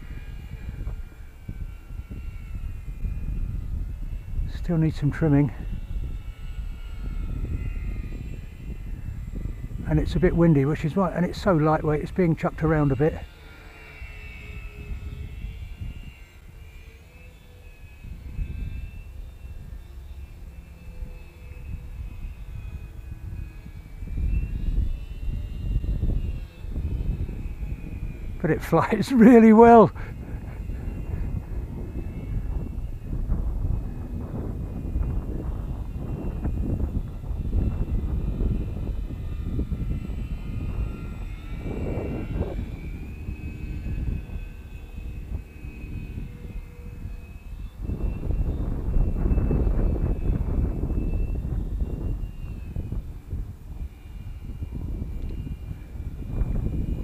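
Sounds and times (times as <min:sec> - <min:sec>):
electric motors and propellers whining: 0:00.0 - 0:57.0
wind rumbling on microphone: 0:00.0 - 0:57.0.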